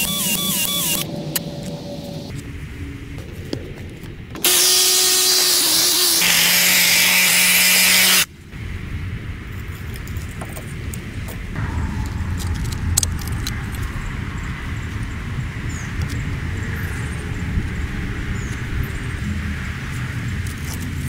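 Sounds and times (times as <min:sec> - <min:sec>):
power drill drilling into brick: 0:04.4 - 0:08.3.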